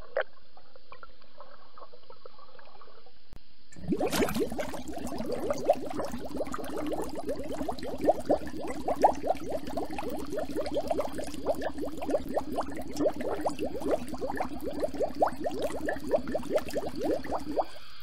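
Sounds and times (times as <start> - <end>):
underwater bubbling and gurgling: 3.8 - 18.0.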